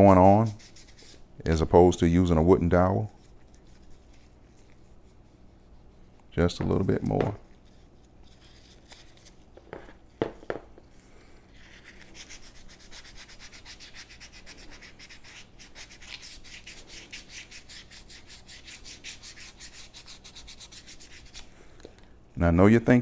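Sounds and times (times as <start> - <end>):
sandpaper rubbing on wood: 11.7 - 21.4.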